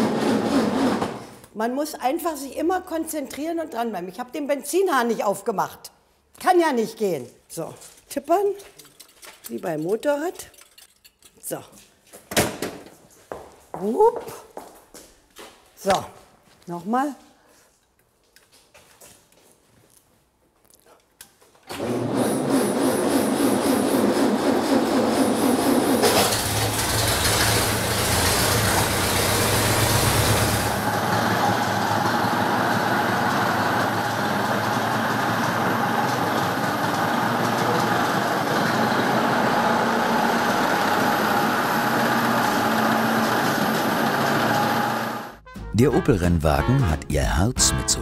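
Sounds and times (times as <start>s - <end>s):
race car engine starting and running: 21.7s - 45.4s.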